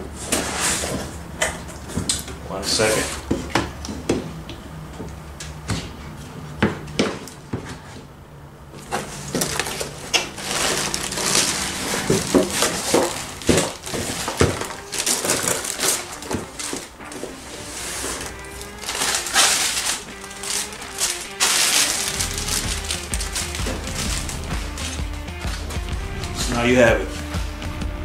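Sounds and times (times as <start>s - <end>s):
plastic bag crinkling: 8.8s - 26.2s.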